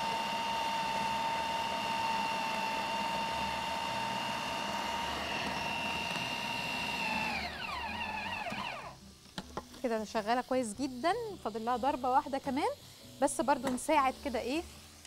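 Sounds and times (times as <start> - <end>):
food processor motor whining: 0.0 - 9.0.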